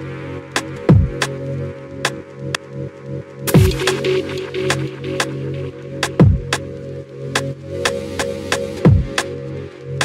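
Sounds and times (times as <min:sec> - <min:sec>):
drum and bass music: 0:00.0 - 0:10.0.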